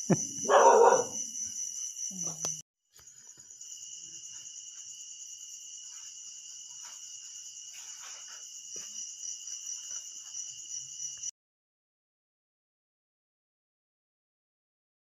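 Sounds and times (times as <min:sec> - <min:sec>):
insects chirring: 0:00.0 - 0:11.3.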